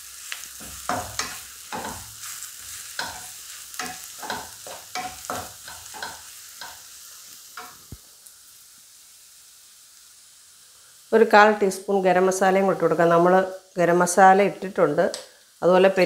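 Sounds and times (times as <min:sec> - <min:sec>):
frying sizzle in oil: 0:00.0 - 0:16.0
spatula scraping wok: 0:00.1 - 0:08.0.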